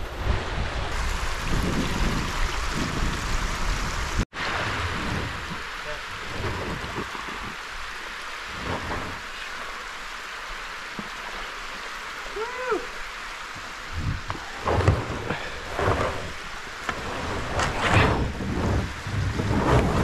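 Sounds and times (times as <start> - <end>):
rain and running water: 0.0 - 20.0
kayak scuffing and knocking: 8.5 - 9.2, 13.5 - 20.0.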